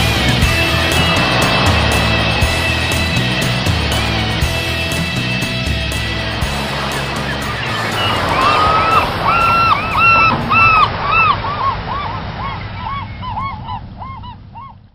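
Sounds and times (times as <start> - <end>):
birds calling: 0.0 - 14.9.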